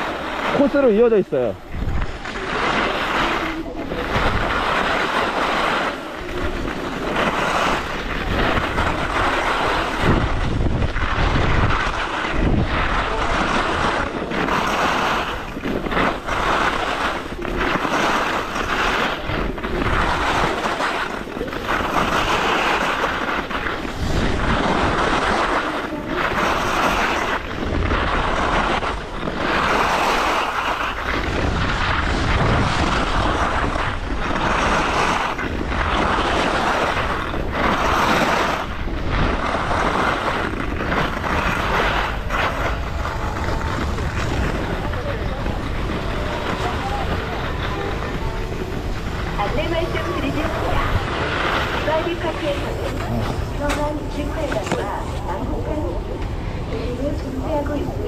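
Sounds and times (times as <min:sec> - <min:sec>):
skis hissing and scraping on snow: 0:00.0 - 0:55.9
wind buffeting microphone: 0:00.0 - 0:58.0.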